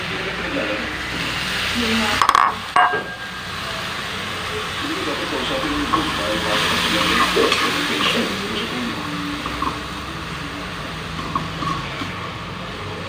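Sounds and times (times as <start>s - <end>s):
stove rumble and hiss: 0.0s - 13.0s
metal spoon clinking on pan: 2.3s - 3.4s.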